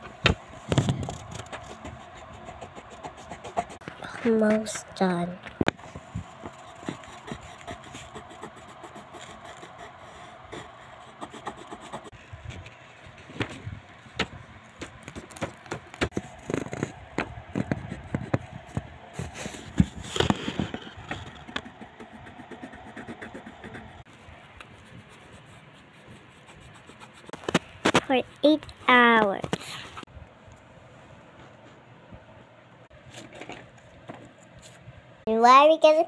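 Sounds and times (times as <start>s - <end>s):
pencil scratching on paper: 1.2s - 3.8s, 6.2s - 12.2s, 19.2s - 27.4s
pencil taps and rubs: 5.9s - 8.2s, 17.5s - 18.9s, 19.8s - 21.8s.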